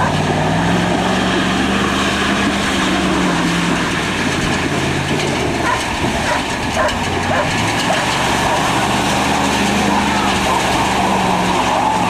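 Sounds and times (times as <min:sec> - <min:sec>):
diesel truck engine running: 0:00.0 - 0:12.0
water washing around truck: 0:00.0 - 0:12.0.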